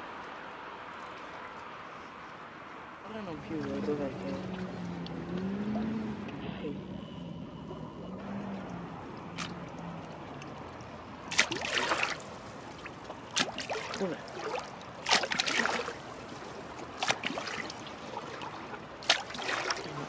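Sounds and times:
seawater splashing against wall: 9.2s - 20.0s.

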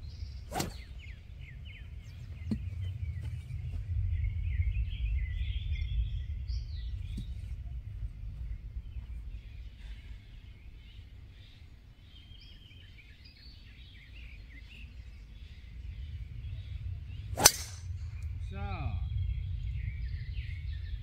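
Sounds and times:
faint birdsong: 0.0s - 21.0s
low steady rumble: 0.0s - 21.0s
golf club striking ball: 17.3s - 18.3s.

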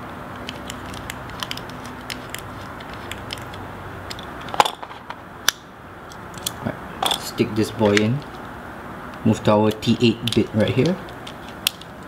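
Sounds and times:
screwdriver clicking and scraping: 0.4s - 5.2s.

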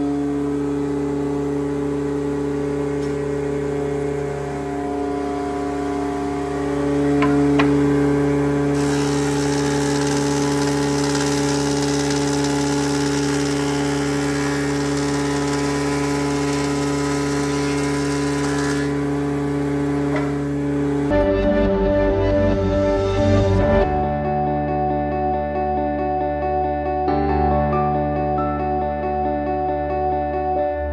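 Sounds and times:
planer humming: 2.5s - 23.9s
cutter chipping wood hiss: 8.8s - 19.0s.

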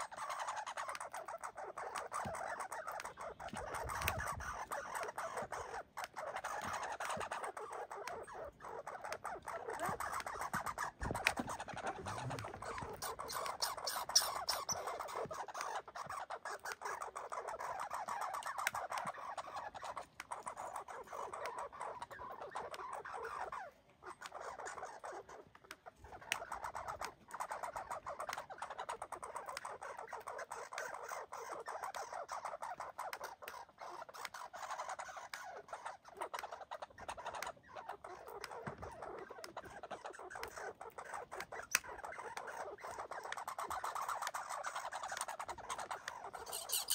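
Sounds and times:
squirrel chattering: 0.0s - 46.9s
sharp clicks: 0.1s - 23.4s.

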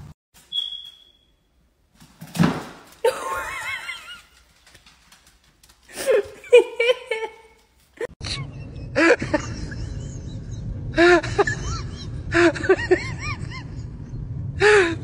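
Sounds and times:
steady low rumble: 8.2s - 15.0s.

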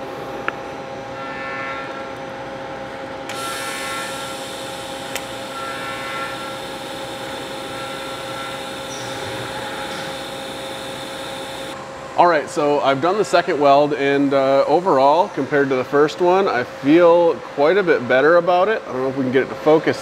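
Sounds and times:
hum of shop machinery: 0.0s - 20.0s
welding arc hissing: 3.3s - 11.8s.

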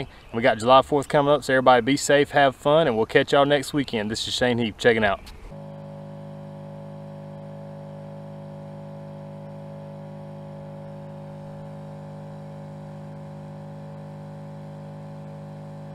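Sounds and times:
steady hum of held tones: 5.5s - 15.9s.

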